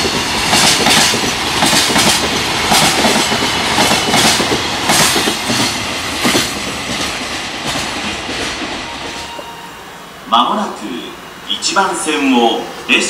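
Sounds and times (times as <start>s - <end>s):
train wheels clacking on rail joints: 0.0s - 9.5s
train rumble: 0.0s - 13.0s.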